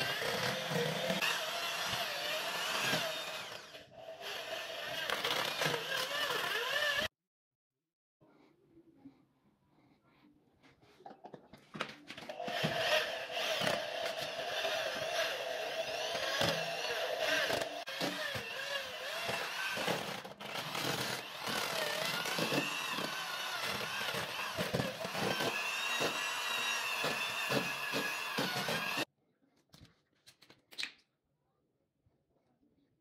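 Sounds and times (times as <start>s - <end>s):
electric drill motor whining: 0.0s - 7.1s, 12.3s - 29.1s.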